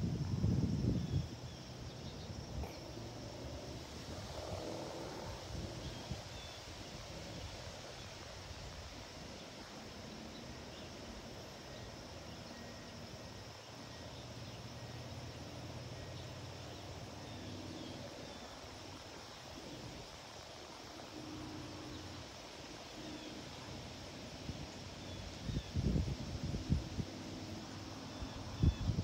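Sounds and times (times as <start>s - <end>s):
distant jet airliner rumble: 0.0s - 8.2s
outdoor background hiss: 0.0s - 29.0s.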